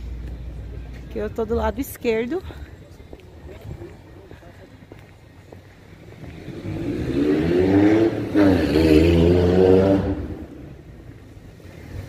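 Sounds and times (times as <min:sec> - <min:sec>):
car engine accelerating past: 0:06.4 - 0:10.7.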